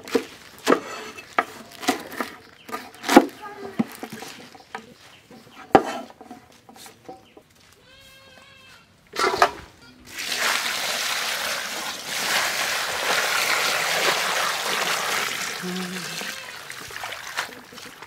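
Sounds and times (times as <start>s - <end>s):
goat-like bleat: 7.8s - 8.9s, 15.6s - 16.8s
water pouring into bowl: 10.1s - 18.0s.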